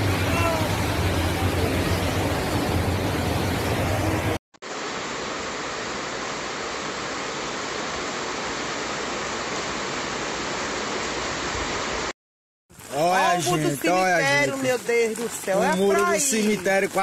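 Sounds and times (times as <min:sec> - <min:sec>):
low rumble: 0:00.0 - 0:04.4
heavy rain: 0:00.0 - 0:12.1, 0:12.7 - 0:17.0
rushing floodwater: 0:00.0 - 0:12.1, 0:12.7 - 0:17.0.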